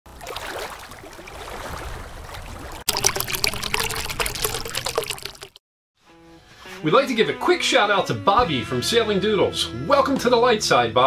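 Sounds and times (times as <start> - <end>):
water trickling and splashing: 0.1 - 5.6.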